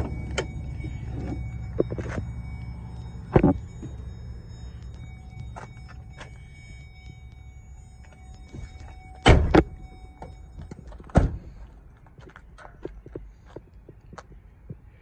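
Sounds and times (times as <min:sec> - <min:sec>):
truck door shutting thunk: 0:11.1 - 0:11.5.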